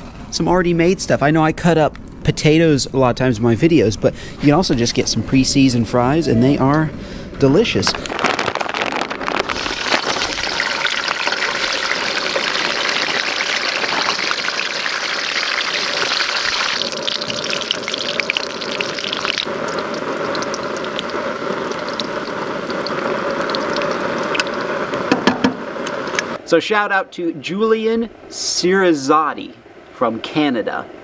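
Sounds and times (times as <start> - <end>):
oil popping and crackling: 7.8 - 26.4
fries sizzling in oil: 8.2 - 26.4.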